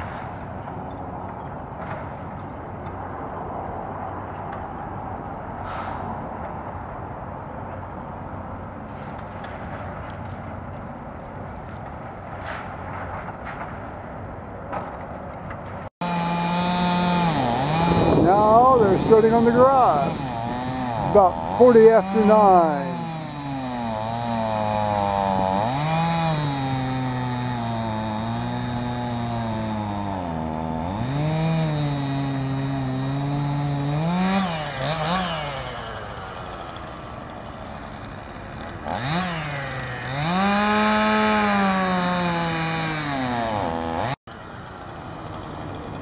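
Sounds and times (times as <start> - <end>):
chainsaw cutting wood: 16.0 - 46.0.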